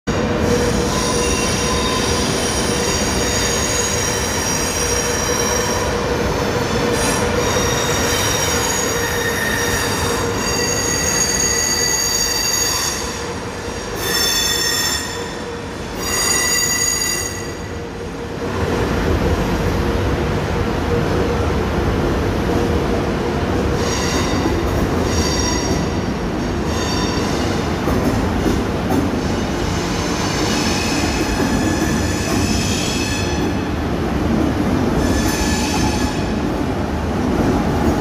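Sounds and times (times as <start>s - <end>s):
train wheels squealing on rails: 0.1s - 17.9s, 23.7s - 33.7s, 34.9s - 36.4s
train rumble: 0.1s - 38.0s.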